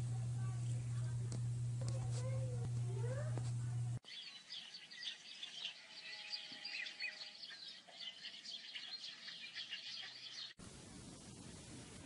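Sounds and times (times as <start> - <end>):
small birds chirping: 4.0 - 10.6.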